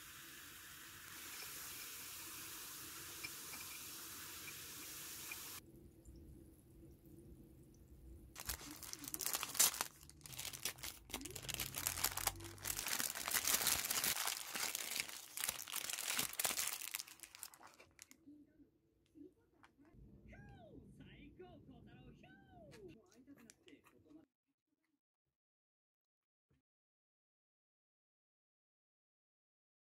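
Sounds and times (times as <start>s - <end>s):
cola fizzing: 0.0s - 7.2s
paper wrapper crinkling: 8.4s - 18.2s.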